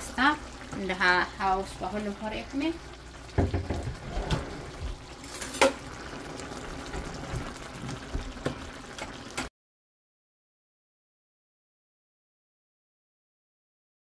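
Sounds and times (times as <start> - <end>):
sauce bubbling in a pan: 0.0 - 9.5.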